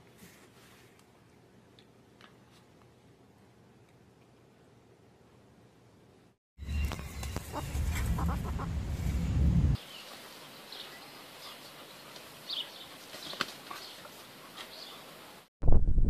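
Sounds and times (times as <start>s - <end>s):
loud low rumble: 6.6s - 9.8s
chickens calling: 6.8s - 9.4s.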